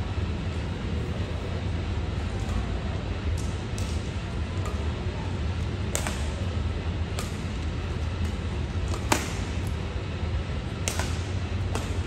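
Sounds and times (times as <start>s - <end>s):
racket hitting shuttlecock: 5.9s - 6.4s, 7.1s - 7.6s, 8.2s - 9.8s, 10.8s - 12.0s.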